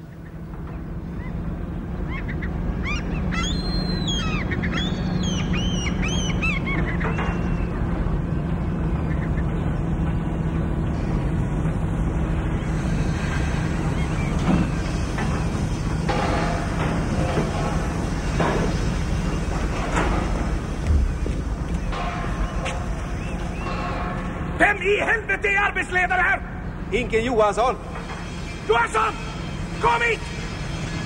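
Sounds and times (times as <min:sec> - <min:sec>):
gulls calling: 0:00.0 - 0:31.0
low industrial rumble: 0:00.0 - 0:31.0
metal clank: 0:13.2 - 0:24.7, 0:27.8 - 0:29.8.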